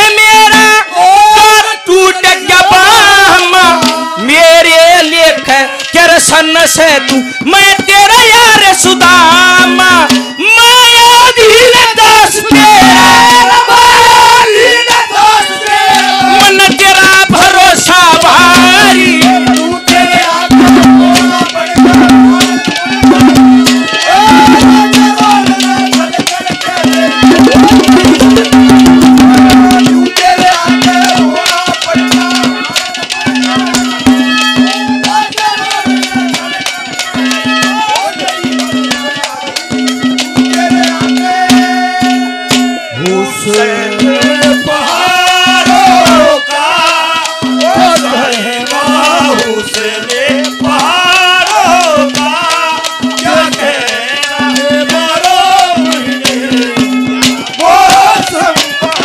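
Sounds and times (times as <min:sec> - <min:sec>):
hand drums fast beat: 0:00.0 - 0:59.0
melody instrument: 0:26.8 - 0:41.1.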